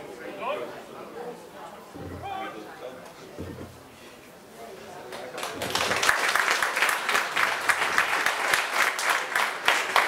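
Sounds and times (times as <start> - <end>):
crowd applauding: 5.1 - 10.0.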